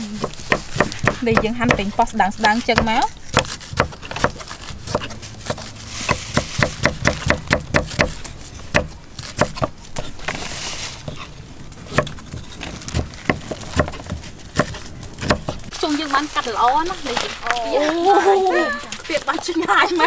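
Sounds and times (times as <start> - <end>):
knives chopping on wood: 0.1 - 10.1, 11.8 - 15.7.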